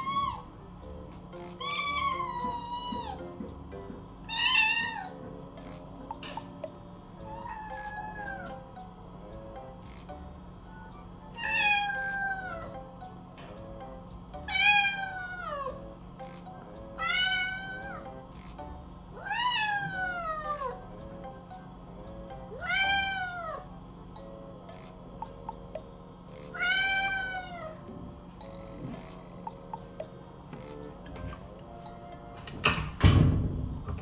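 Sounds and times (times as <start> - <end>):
cat meowing: 1.6 - 3.2, 4.3 - 5.1, 7.2 - 8.6, 11.4 - 12.7, 14.5 - 15.7, 17.0 - 18.0, 19.2 - 20.8, 22.6 - 23.6, 26.5 - 27.8.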